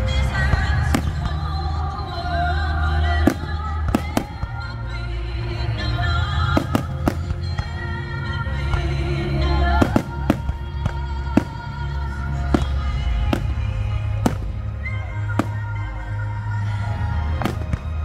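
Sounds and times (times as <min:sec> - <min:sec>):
fireworks bangs: 0:03.2 - 0:04.7, 0:06.4 - 0:07.8, 0:09.7 - 0:14.7, 0:15.3 - 0:15.8, 0:17.4 - 0:18.0.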